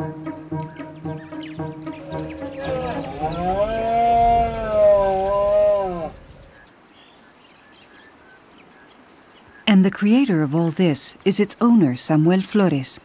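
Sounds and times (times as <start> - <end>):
stag roaring: 2.0 - 6.5.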